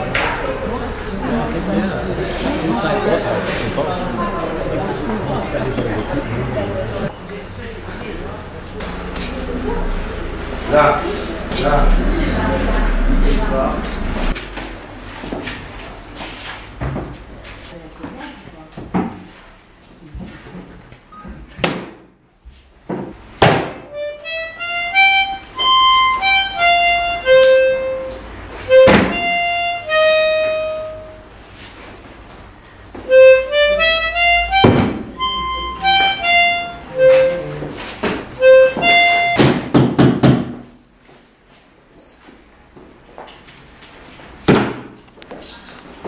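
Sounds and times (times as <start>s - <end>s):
loud knocks: 23.0s - 23.9s, 34.6s - 35.1s, 39.4s - 40.6s
free-reed instrument melody: 23.9s - 31.4s, 33.0s - 39.6s.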